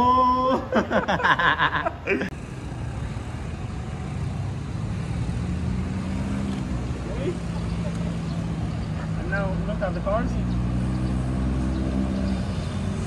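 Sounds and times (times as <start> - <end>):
man's voice: 0.0 - 1.0
road traffic rumble: 0.0 - 13.0.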